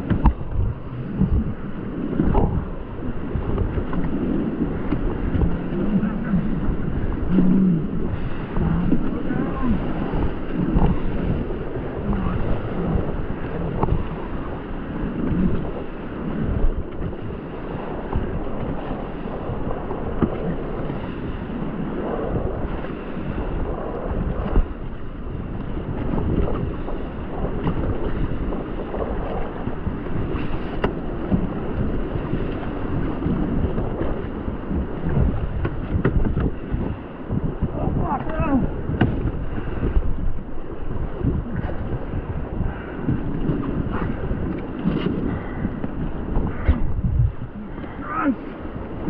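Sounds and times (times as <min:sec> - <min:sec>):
wind buffeting microphone: 0:00.0 - 0:49.0
rushing whitewater: 0:04.0 - 0:14.6, 0:37.6 - 0:43.0, 0:46.5 - 0:49.0.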